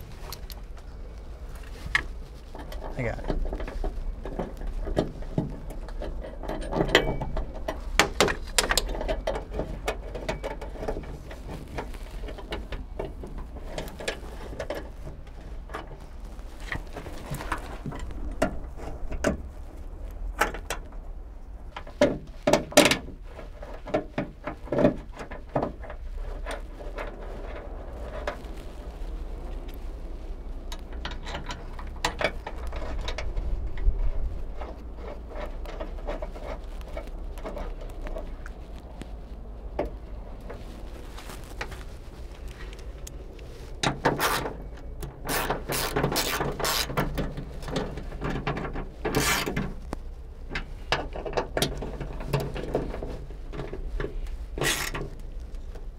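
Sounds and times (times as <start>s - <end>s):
low steady rumble: 0.0s - 55.9s
ratchet tightening bolts: 45.2s - 47.0s, 49.1s - 49.6s, 54.6s - 55.0s.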